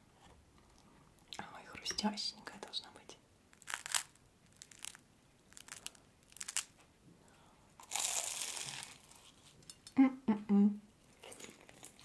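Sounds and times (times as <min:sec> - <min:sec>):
puff pastry crackling: 0:03.5 - 0:06.8, 0:07.8 - 0:09.6, 0:11.1 - 0:12.0.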